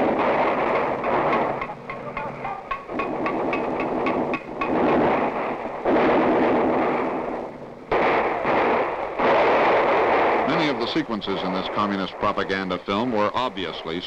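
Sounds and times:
gunshots: 0.0s - 13.9s
loud rumbling blasts: 0.0s - 14.0s.

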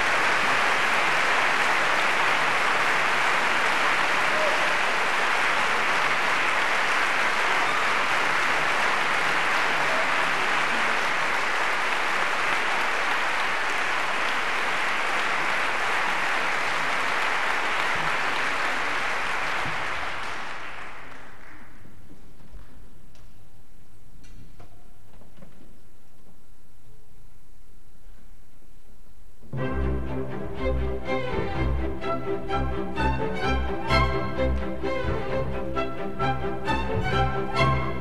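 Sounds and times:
audience applauding: 0.0s - 22.8s.

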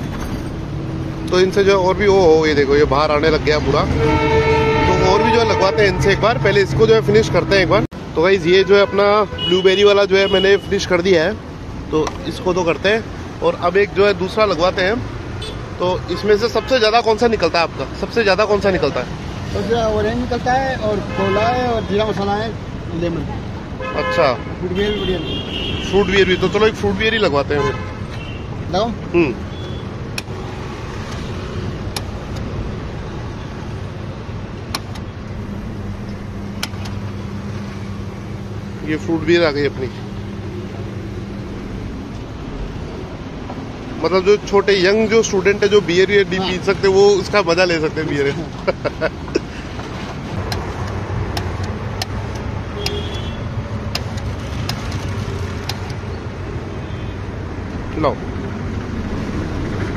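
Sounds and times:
road traffic noise: 0.0s - 59.9s
sharp clicks: 55.6s - 56.1s.

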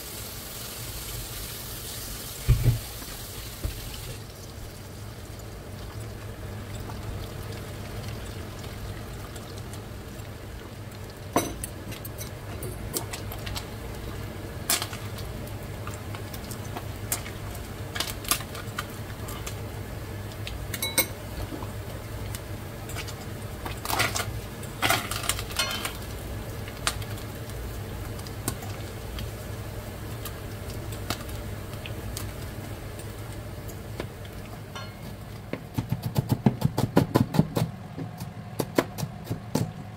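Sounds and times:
fish sizzling in a pan: 0.0s - 35.4s.

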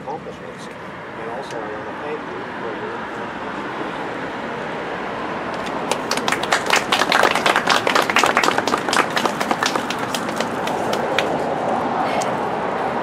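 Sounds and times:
traffic hiss: 0.0s - 13.0s
people applauding: 5.6s - 11.4s.

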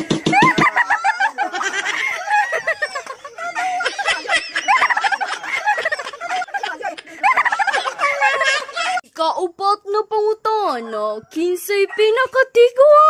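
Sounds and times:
people laughing: 0.0s - 9.1s.

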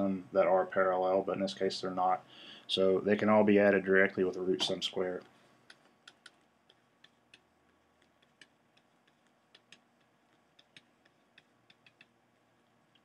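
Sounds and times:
stylus tapping on pen tablet: 5.7s - 13.0s.

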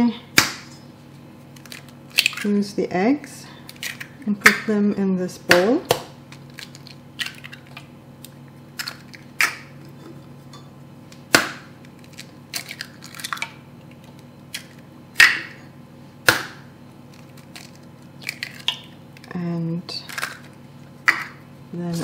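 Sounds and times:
eggs cracking against metal bowl: 1.5s - 2.6s, 3.6s - 4.8s, 5.5s - 21.5s
eggshells snapping and clinking: 1.6s - 2.6s, 3.7s - 4.2s, 6.3s - 7.9s, 8.8s - 9.7s, 11.4s - 15.5s, 17.1s - 21.4s.

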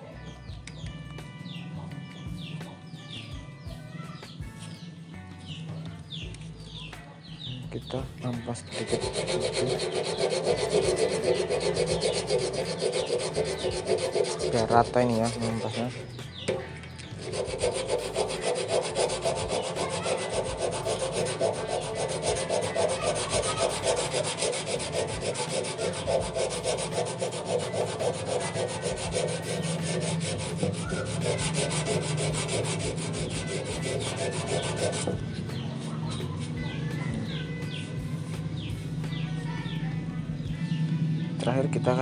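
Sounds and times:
sandpaper sanding metal: 8.6s - 39.1s.

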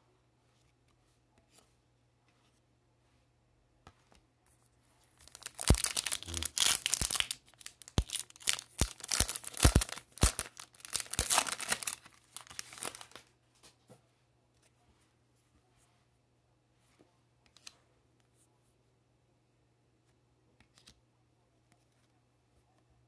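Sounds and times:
foil wrapper tearing and crinkling: 5.2s - 13.2s.

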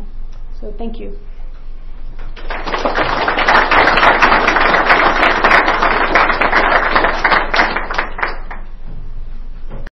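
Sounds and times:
audience applauding: 2.3s - 8.7s.

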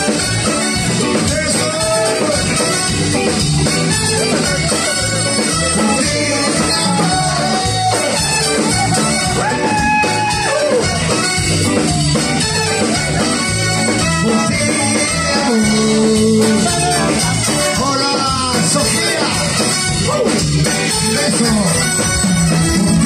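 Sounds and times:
electric bass: 0.0s - 23.0s
guitars: 0.0s - 23.0s
live latin dance band: 0.0s - 23.0s
person singing: 5.6s - 10.8s, 14.2s - 21.6s.

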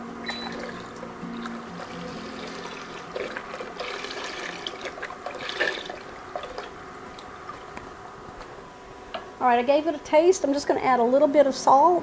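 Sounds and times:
broth pouring into pot: 0.4s - 6.8s.

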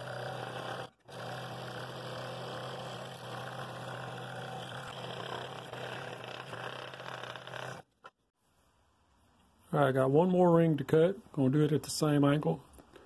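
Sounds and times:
scroll saw cutting wood: 0.0s - 8.2s.

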